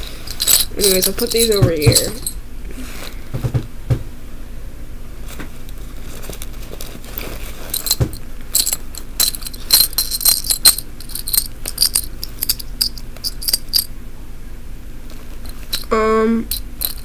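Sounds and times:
metal buttons clinking: 0.0 - 2.4, 7.7 - 13.9, 16.5 - 17.0.

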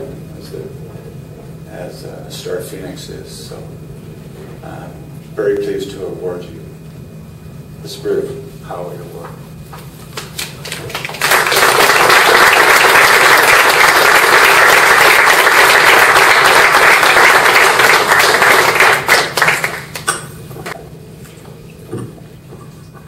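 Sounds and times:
audience applauding: 10.1 - 20.8.

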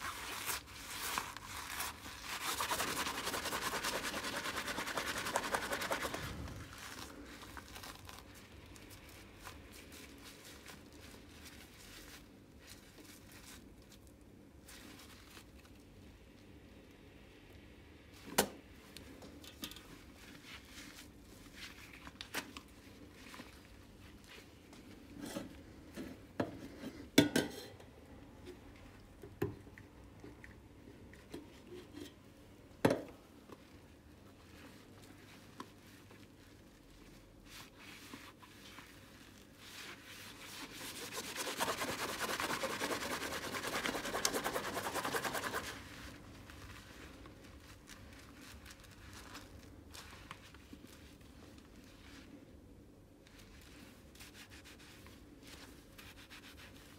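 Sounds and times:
gloved hands handling sponges: 0.0 - 16.0, 18.2 - 27.2, 33.0 - 56.9
scrubber rubbing between hands: 37.4 - 51.2.

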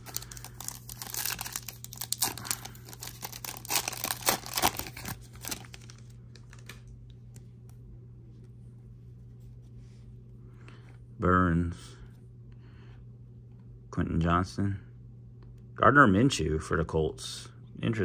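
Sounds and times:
foil wrapper crinkling and tearing: 0.0 - 6.9.

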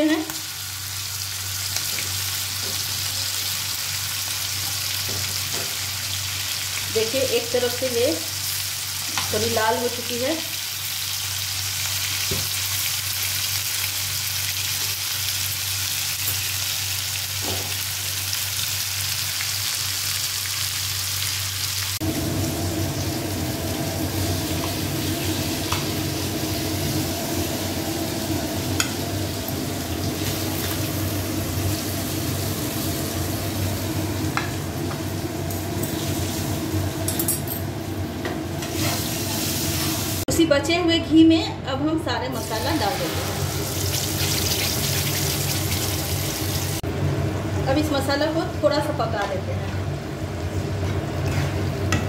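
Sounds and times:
chicken sizzling in hot fat: 0.0 - 37.0, 37.8 - 40.3, 42.4 - 46.9.

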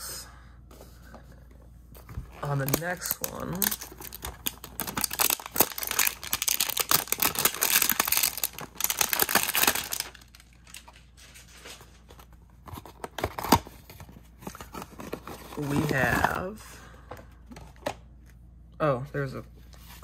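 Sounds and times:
packaging torn and crinkled: 2.3 - 12.0.

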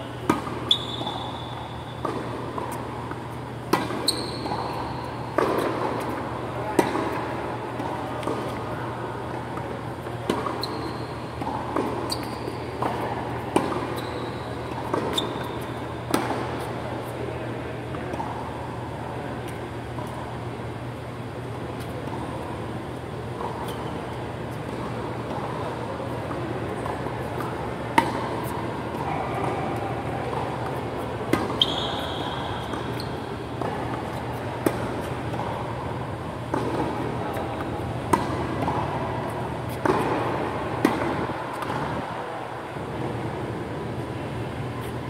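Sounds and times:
tennis ball hits: 0.2 - 8.6, 29.4 - 33.0, 33.6 - 35.6, 36.4 - 38.9, 39.7 - 42.0.

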